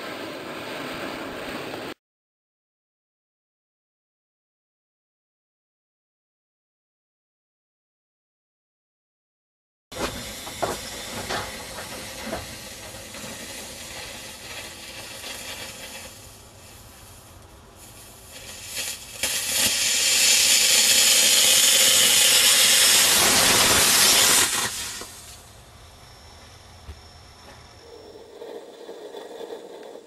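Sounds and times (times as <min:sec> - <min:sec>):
rocket motor crackling hiss: 0:00.0 - 0:02.0, 0:09.9 - 0:30.0
rocket motor jet hiss: 0:10.0 - 0:30.0.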